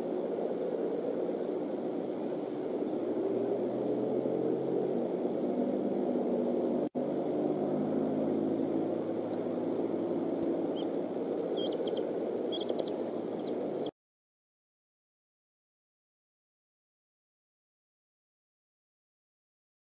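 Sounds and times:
low outdoor rumble: 0.0 - 13.9
high bird chirps: 10.7 - 13.9.

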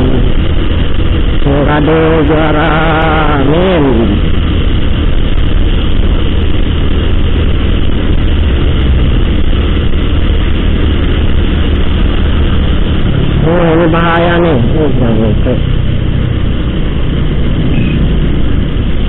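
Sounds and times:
motorcycle engine: 0.0 - 19.0
wind buffeting microphone: 0.0 - 19.0.

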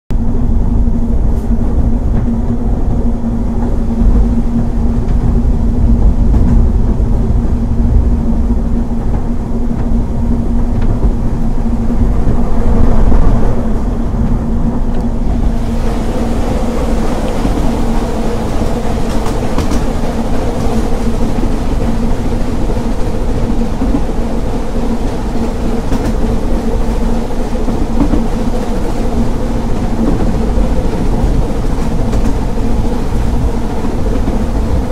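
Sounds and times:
steady hum: 0.1 - 34.9
train wheels rumbling on rails: 0.1 - 34.9
steam hiss: 15.4 - 34.9.

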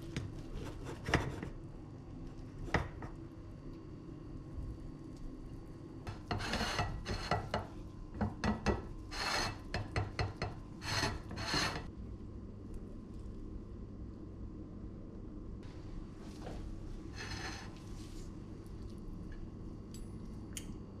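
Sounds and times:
metal utensils scraping on plate: 6.1 - 7.7, 8.5 - 11.9, 17.2 - 17.7.

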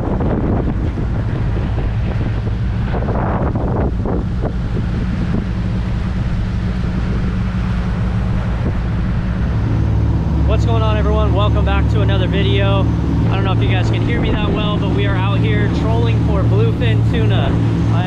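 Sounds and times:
boat engine running: 0.0 - 18.0
wind buffeting microphone: 0.0 - 18.0
people talking: 10.5 - 18.0.

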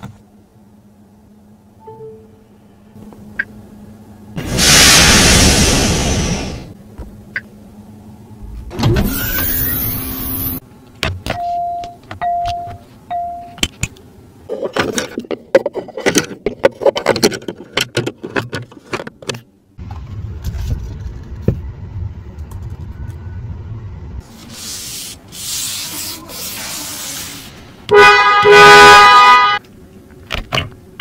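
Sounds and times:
low steady hum: 0.0 - 4.4.

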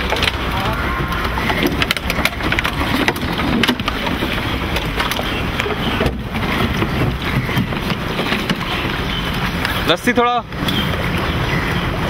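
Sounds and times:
boat engine running: 0.0 - 12.0
water rushing along hull: 0.0 - 12.0.

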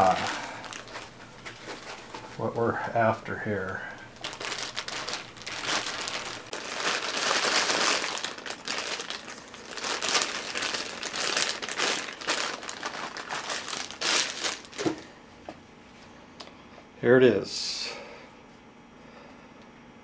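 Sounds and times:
plastic bag crinkling: 0.0 - 15.2.

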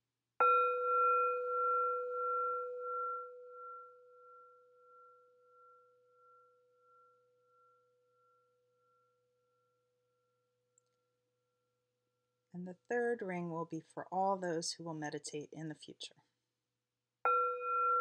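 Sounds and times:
meditation bell ringing: 0.4 - 9.3, 17.3 - 18.0.

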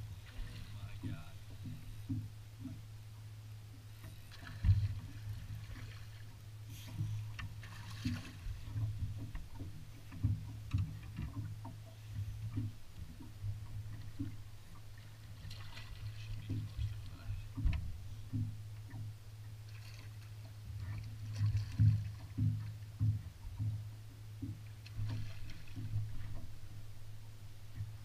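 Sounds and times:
steady low rumble: 0.0 - 28.0
knocks and thumps on boat hull: 0.2 - 2.8, 4.0 - 6.0, 6.8 - 14.8, 15.4 - 19.1, 20.7 - 26.8.

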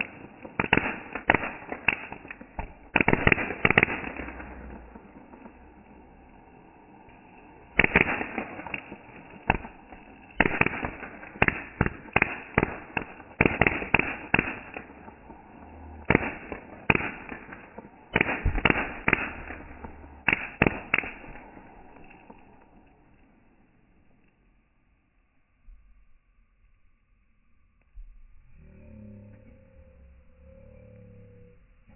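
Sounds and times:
firework cracks and bangs: 0.0 - 24.2.

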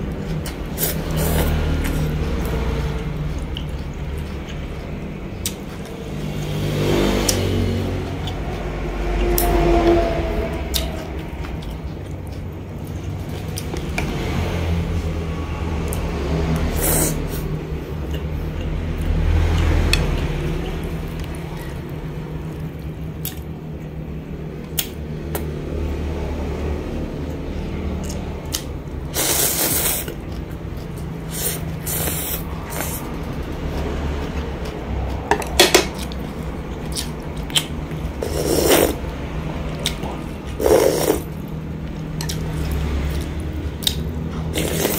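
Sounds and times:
chewing: 0.0 - 6.0, 27.9 - 39.1, 39.7 - 44.9
slurping noodles and broth: 0.7 - 2.6, 16.6 - 17.5, 29.0 - 30.4, 31.2 - 33.1, 38.1 - 39.1, 40.2 - 41.4, 44.4 - 44.9.

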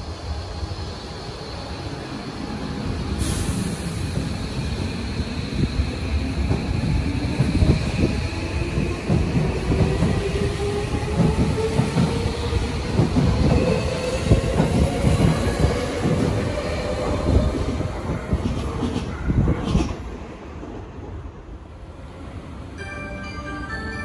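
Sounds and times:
train wheels clattering on rails: 6.3 - 20.0.

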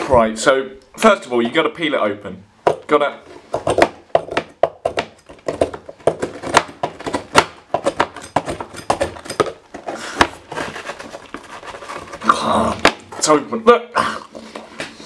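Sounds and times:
knife scraping a biscuit: 9.8 - 12.4.

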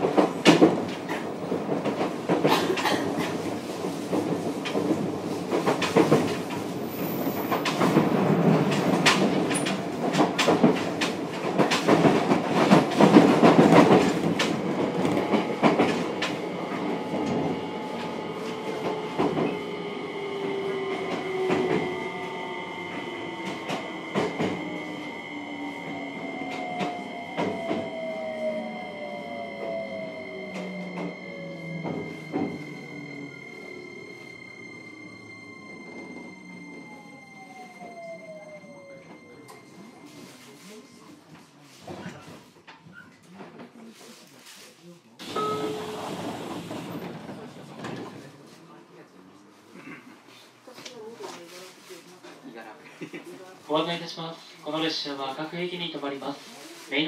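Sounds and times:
train running noise: 0.0 - 42.1
traction motor whine: 17.2 - 39.4
inverter high tones: 19.6 - 40.2.

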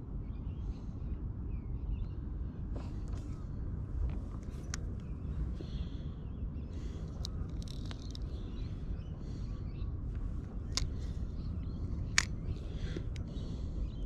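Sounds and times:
steady low rumble: 0.0 - 14.0
faint bird chirps: 4.7 - 14.0
sharp clicks: 7.0 - 8.4, 12.0 - 13.3.

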